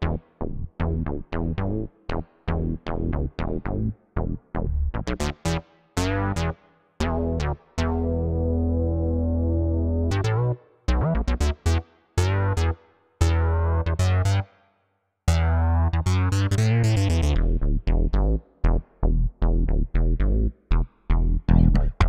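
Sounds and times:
synthesizer and keyboard chords: 4.3s - 14.5s, 15.3s - 20.6s.

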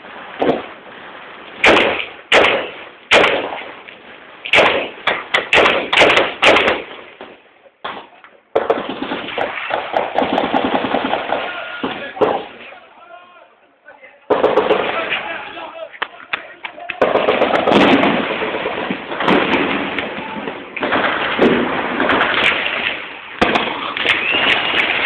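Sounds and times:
gunshots: 1.6s - 3.8s, 4.5s - 12.7s, 14.3s - 15.6s, 17.0s - 25.0s
rapid gunfire rattle: 8.6s - 11.5s.

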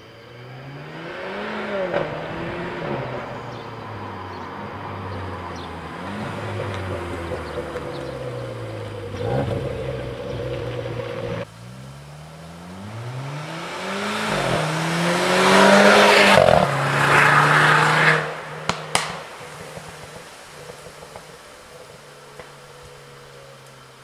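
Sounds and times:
car engine accelerating: 0.0s - 24.0s
exhaust pops: 5.5s - 23.0s.

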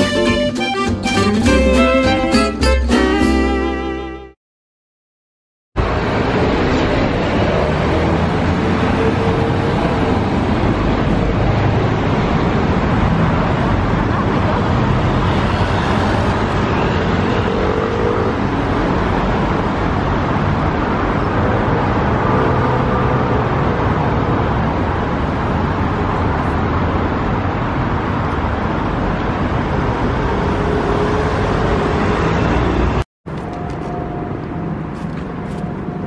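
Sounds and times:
bus passing: 0.0s - 4.4s, 5.8s - 36.0s
motorbike passing: 5.8s - 26.6s
cars passing: 5.8s - 36.0s.

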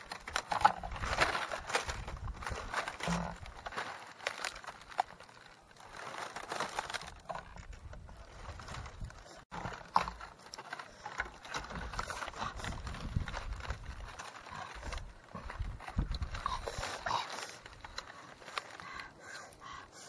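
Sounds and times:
dry leaves rustling and crackling: 0.0s - 19.5s
small irregular clicks: 9.5s - 19.9s.

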